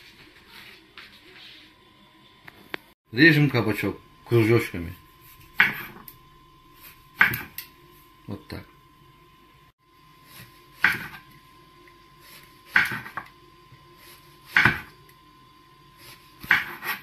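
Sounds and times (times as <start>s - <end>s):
knife slicing on wooden board: 16.0s - 17.0s.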